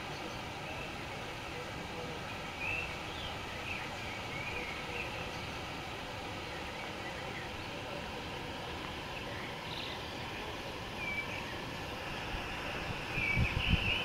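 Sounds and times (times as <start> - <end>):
stream flowing over stones: 0.0 - 14.0
faint bird chirps: 9.1 - 11.7, 13.1 - 14.0.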